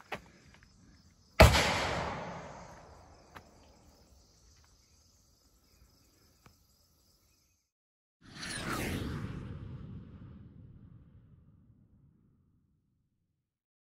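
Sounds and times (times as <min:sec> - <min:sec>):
loud bang with echo: 0:01.4 - 0:02.8
faint insect buzz: 0:02.3 - 0:07.7.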